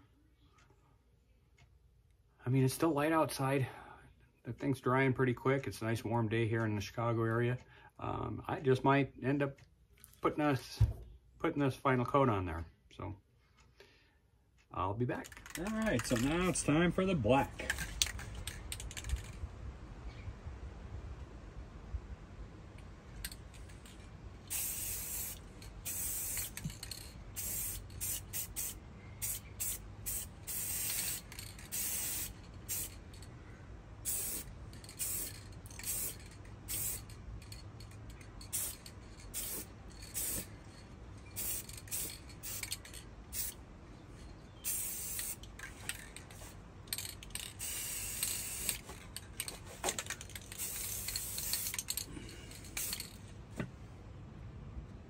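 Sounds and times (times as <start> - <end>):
spray paint can hissing: 24.5 - 33.1, 34.0 - 37.1, 38.4 - 40.6, 41.2 - 43.6, 44.6 - 52.1, 52.7 - 53.2.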